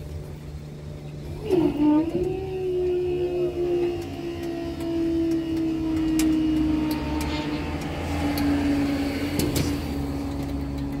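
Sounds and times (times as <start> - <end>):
steady hum: 0.0 - 11.0
cars driving over level crossing: 2.3 - 11.0.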